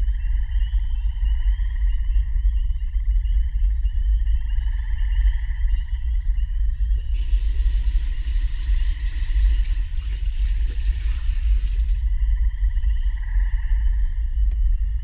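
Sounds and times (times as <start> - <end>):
deep steady rumble: 0.0 - 15.0
hiss: 6.9 - 12.0.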